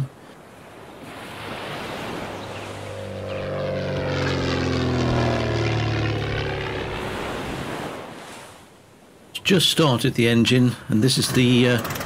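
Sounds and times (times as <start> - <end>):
propeller aircraft flying past: 1.2 - 8.3.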